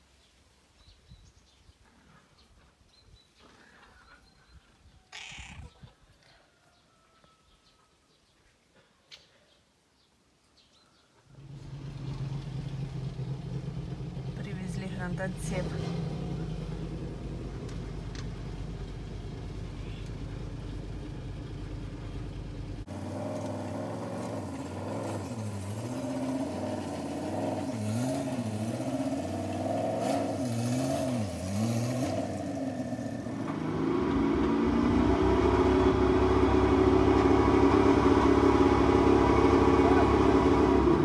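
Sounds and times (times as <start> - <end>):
truck engine revving: 11.3 - 41.0.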